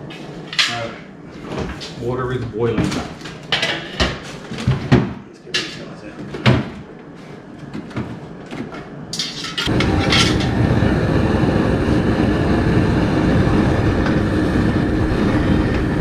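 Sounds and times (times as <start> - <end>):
gas burner flame rushing: 9.1 - 16.0.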